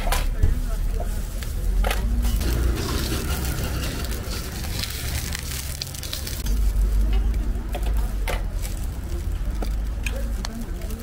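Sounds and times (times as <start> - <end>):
low rumble: 2.1 - 7.6
dough sizzling in oil: 2.3 - 6.9.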